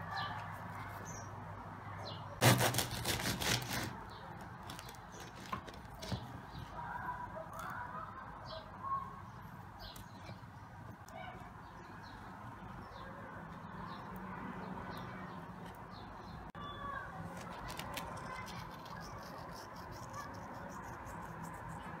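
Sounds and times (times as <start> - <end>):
bread knife sawing crust: 2.4 - 4.0
birds chirping: 3.8 - 22.0.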